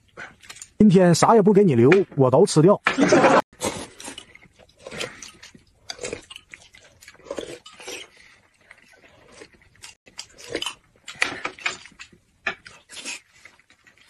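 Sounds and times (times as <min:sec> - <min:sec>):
chewing and wet mouth sounds: 0:00.0 - 0:00.8, 0:03.6 - 0:14.0.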